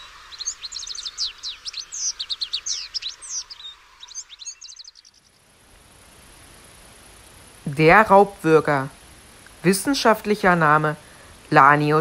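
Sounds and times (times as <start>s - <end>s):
bird singing chattering notes: 0.0s - 5.4s.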